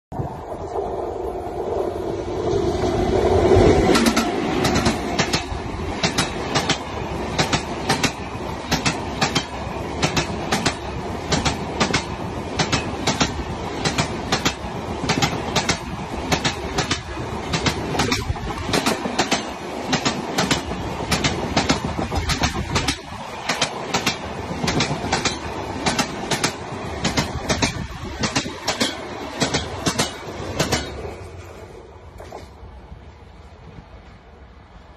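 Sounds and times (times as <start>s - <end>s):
train rushing past: 0.1s - 34.9s
train wheels clicking over rail joints: 3.8s - 31.5s.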